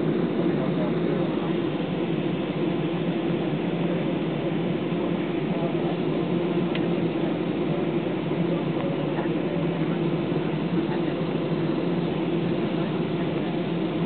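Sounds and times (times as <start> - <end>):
aircraft engines humming: 0.0 - 14.0.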